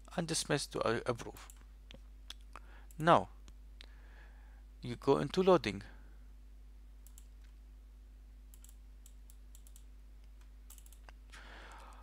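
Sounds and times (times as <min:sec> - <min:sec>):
low electrical hum: 0:00.0 - 0:12.0
light computer clicks: 0:07.0 - 0:07.6, 0:08.5 - 0:12.0.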